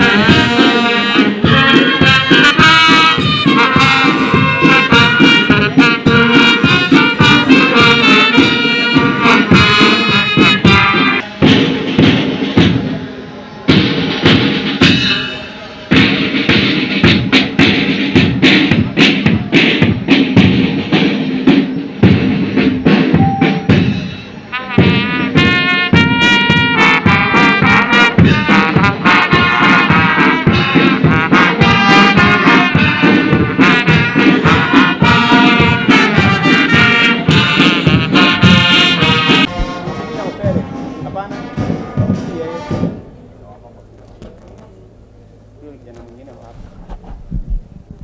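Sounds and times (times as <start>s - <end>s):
brass playing a melody: 0.0s - 11.8s, 23.1s - 43.1s
marching band drumbeat: 0.0s - 13.0s, 13.7s - 43.2s.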